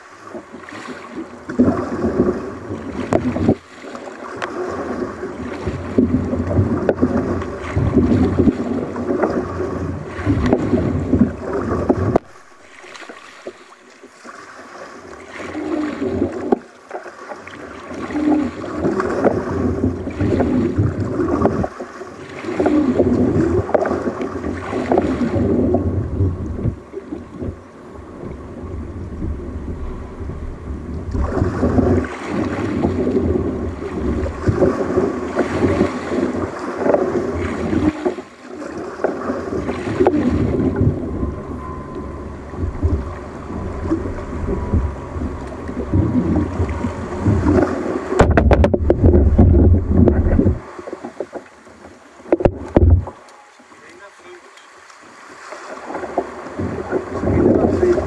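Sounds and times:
water splashing around kayak: 0:00.0 - 0:58.0
wind buffeting microphone: 0:04.4 - 0:12.3, 0:18.1 - 0:51.3, 0:52.3 - 0:53.2, 0:55.9 - 0:58.0.

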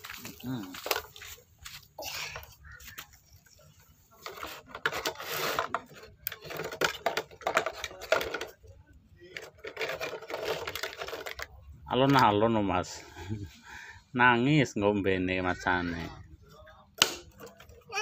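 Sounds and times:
toy animals rattling: 0:09.3 - 0:11.5.

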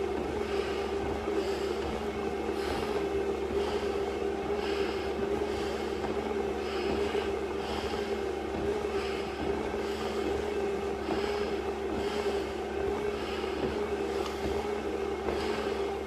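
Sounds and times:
hard breathing through face mask: 0:00.0 - 0:16.0
steady machine hum: 0:00.0 - 0:16.0.

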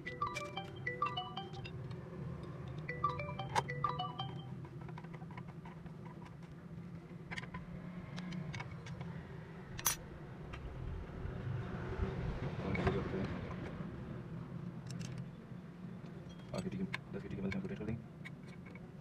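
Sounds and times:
xylophone-like music notes: 0:00.0 - 0:01.9, 0:02.8 - 0:04.6.

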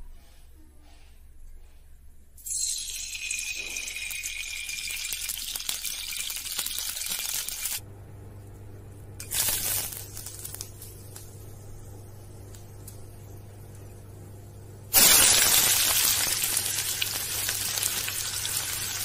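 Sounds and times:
bay leaves sizzling in oil: 0:03.5 - 0:07.8, 0:09.2 - 0:13.1, 0:14.9 - 0:19.0
oil hissing in hot wok: 0:09.2 - 0:11.0, 0:14.9 - 0:19.0.

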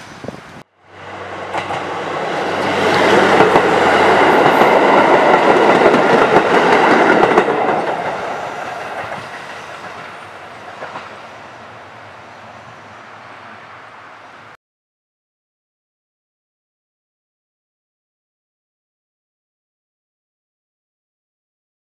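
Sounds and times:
diesel railcar engine: 0:00.0 - 0:14.6
wheels clattering on rails: 0:01.4 - 0:11.2.

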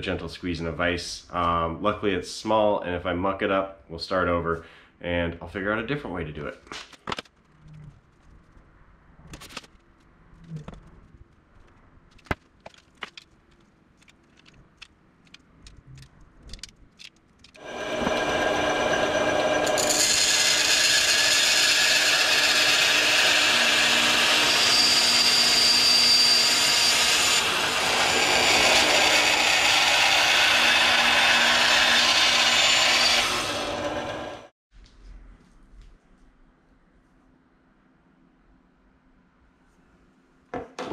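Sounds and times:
band saw cutting metal: 0:17.6 - 0:34.5.

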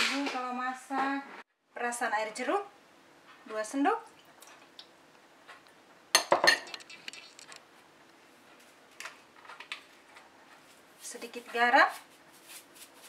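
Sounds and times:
glass bowl clinking: 0:06.2 - 0:06.8.

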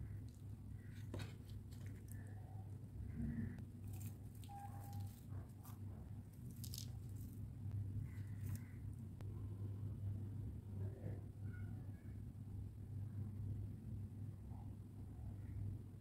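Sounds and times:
low hum: 0:00.0 - 0:16.0
fried snack crumbling: 0:03.8 - 0:07.4.

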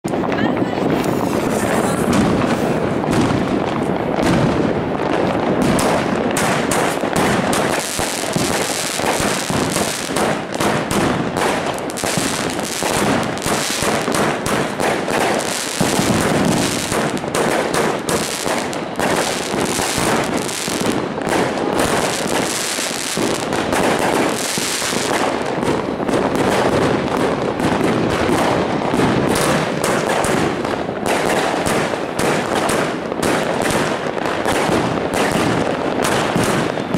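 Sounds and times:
fireworks launch thumps and bangs: 0:00.0 - 0:36.9
crackling of bursting stars: 0:05.7 - 0:25.5.

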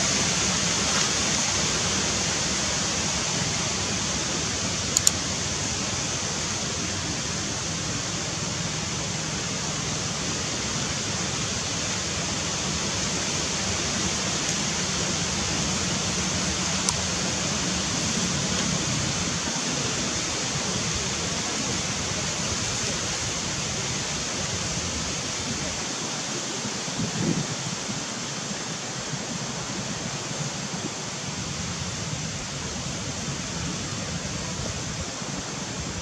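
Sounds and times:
outdoor background hiss: 0:00.0 - 0:36.0
faint click: 0:04.9 - 0:05.2.

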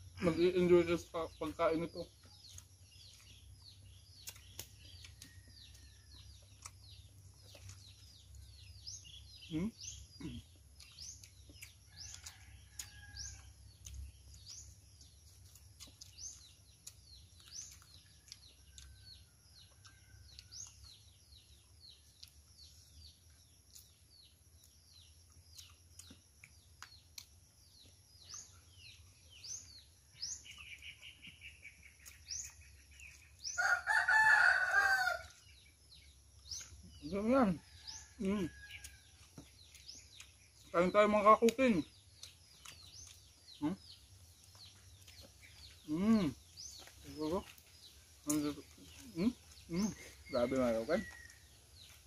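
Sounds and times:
small birds chirping: 0:00.0 - 0:52.0
rooster crowing: 0:33.5 - 0:35.4.

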